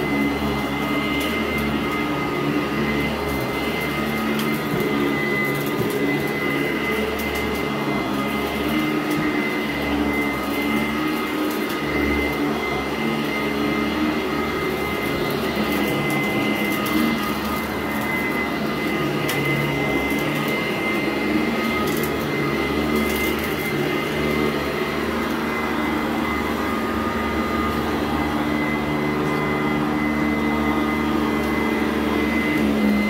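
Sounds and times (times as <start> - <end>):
upright vacuum running on carpet: 0.0 - 33.0.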